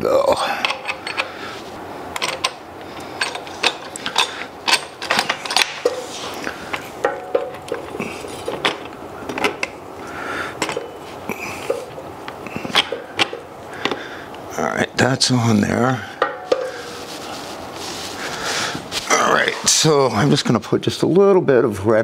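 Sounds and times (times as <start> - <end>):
metal clinks and knocks: 2.2 - 2.6, 3.2 - 6.1, 7.0 - 9.8.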